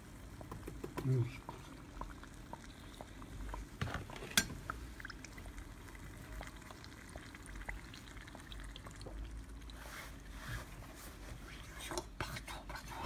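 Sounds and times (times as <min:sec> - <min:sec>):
oil sizzling and crackling: 0:00.0 - 0:10.4.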